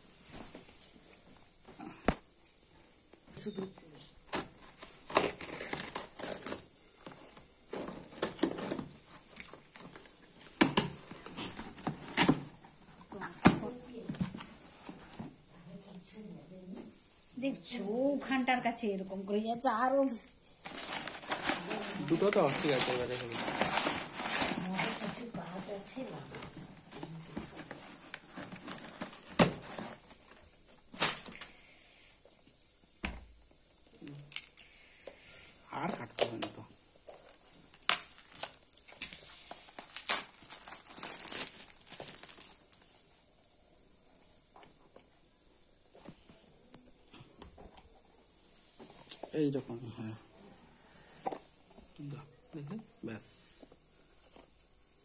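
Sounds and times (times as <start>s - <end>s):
cardboard scraping and crinkling: 4.3s - 9.1s, 20.6s - 31.4s
knife slitting packing tape: 5.1s - 6.7s.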